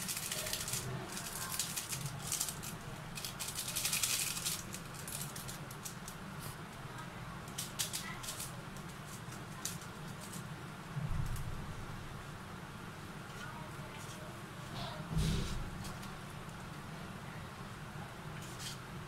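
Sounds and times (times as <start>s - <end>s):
seasoning sachet crinkling: 0.0s - 6.2s.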